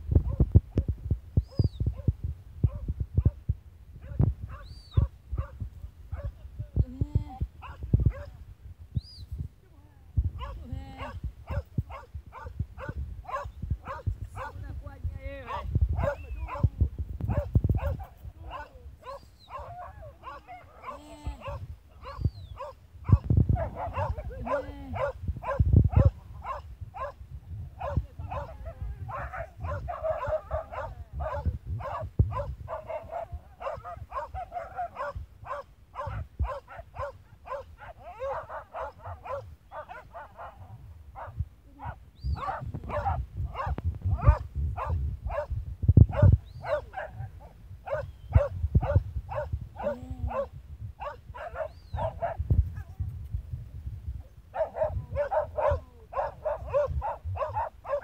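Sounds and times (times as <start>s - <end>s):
dogs barking: 2.7s - 3.4s, 7.6s - 8.4s, 10.4s - 14.6s, 15.5s - 16.7s, 17.3s - 27.2s, 27.8s - 45.5s, 46.1s - 52.9s, 54.5s - 58.0s.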